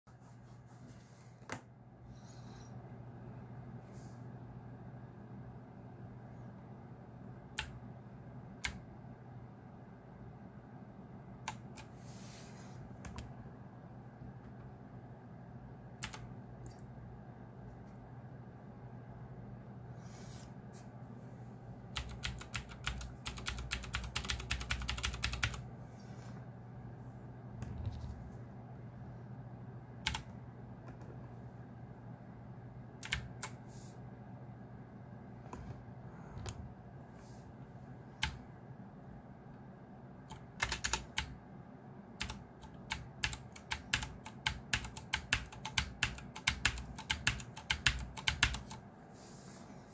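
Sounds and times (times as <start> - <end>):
mechanical keyboard clicks: 16.0 - 16.3, 22.0 - 25.6, 40.3 - 41.3, 42.2 - 48.8.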